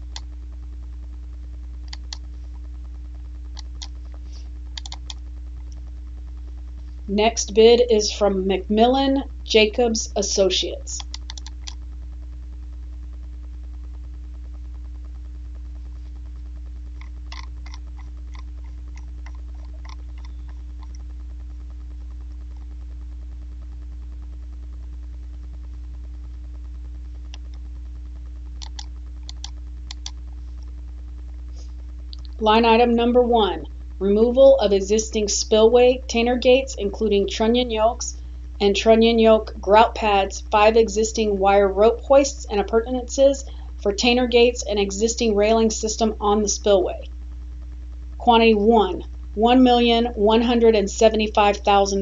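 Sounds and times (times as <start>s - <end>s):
low electrical hum: 0.0s - 52.0s
keyboard clicks: 4.8s - 5.2s, 11.0s - 11.8s, 17.0s - 21.0s, 28.6s - 30.2s.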